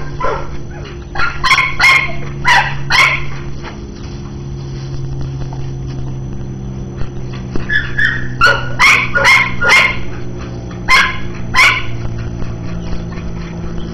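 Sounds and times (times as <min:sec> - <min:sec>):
dog barking and yipping: 0:00.0 - 0:03.5, 0:07.7 - 0:13.7
steady low hum: 0:00.0 - 0:13.9.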